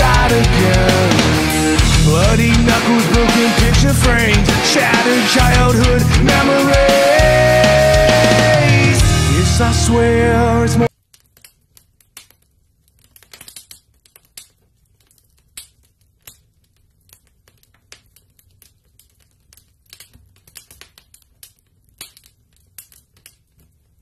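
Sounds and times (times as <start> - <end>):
fire crackling clicks: 10.9 - 24.0.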